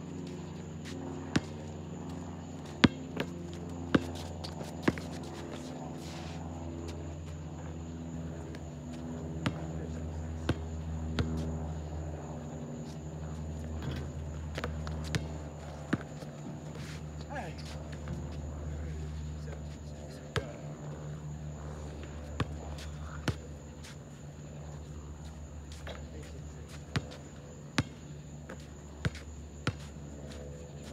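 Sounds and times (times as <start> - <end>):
steady low hum: 0.0 - 30.9
basketball bouncing on asphalt: 0.7 - 1.6, 2.7 - 5.1, 9.4 - 9.7, 10.5 - 11.4, 13.8 - 16.2, 26.9 - 30.0.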